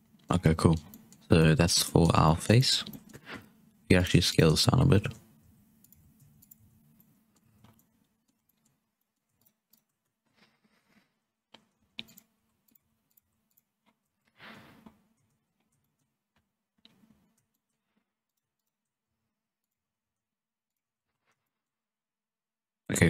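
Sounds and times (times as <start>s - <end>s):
computer mouse and keyboard clicks: 0.0s - 1.3s, 1.9s - 3.4s, 5.1s - 19.0s.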